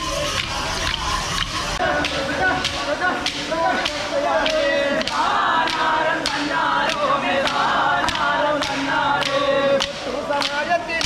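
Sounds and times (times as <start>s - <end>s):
sticks clacking together: 0.3s - 11.0s
group of men singing: 1.7s - 11.0s.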